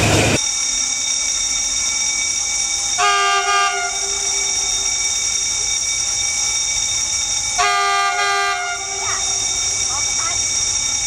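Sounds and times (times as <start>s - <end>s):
diesel engine rumbling: 0.0s - 0.4s, 7.5s - 11.0s
locomotive air horn blasts: 3.0s - 4.6s, 7.6s - 9.4s.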